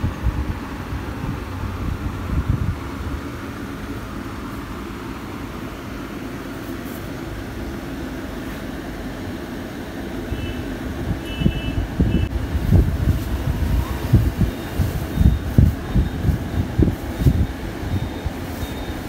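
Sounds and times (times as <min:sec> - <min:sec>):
faint high beeps: 0:18.0 - 0:19.0.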